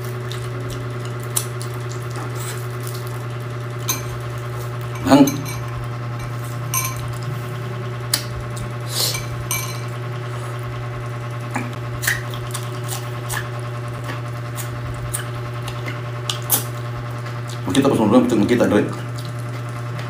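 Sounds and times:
chewing green onion crunches: 0.0 - 4.9, 11.8 - 18.0, 18.7 - 20.0
steady low hum: 0.0 - 20.0.

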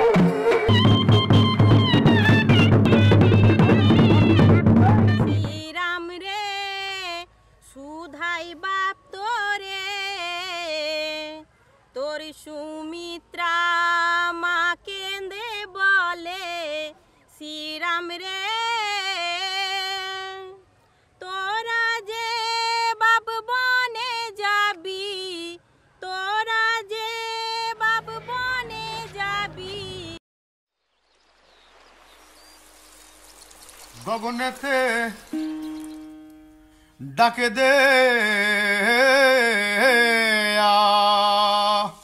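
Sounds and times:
person singing folk song: 0.0 - 11.4, 33.9 - 42.0
woman singing unaccompanied: 0.3 - 30.2.

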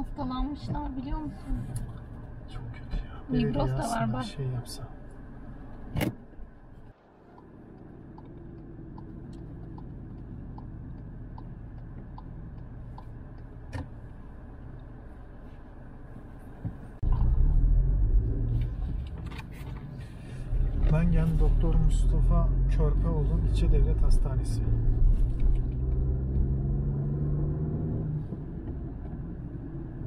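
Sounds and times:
car road and engine noise: 0.0 - 30.0
turn signal ticking: 7.2 - 15.0
loud low rumble: 20.3 - 28.2.

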